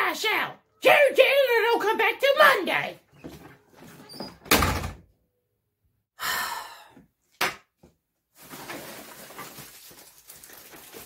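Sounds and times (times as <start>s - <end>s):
door shutting with thud: 4.2s - 5.0s
long falling sigh: 6.2s - 7.1s
short breath: 6.2s - 7.1s.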